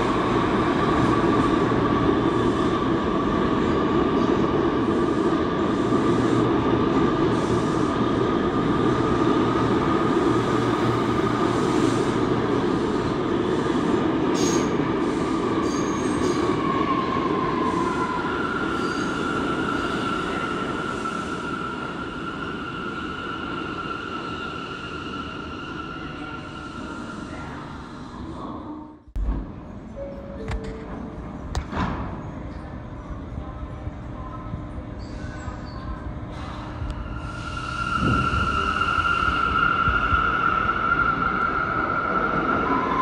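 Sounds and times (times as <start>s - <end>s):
subway train rumble: 0.0s - 43.0s
high wheel squeal: 17.6s - 27.3s, 37.1s - 43.0s.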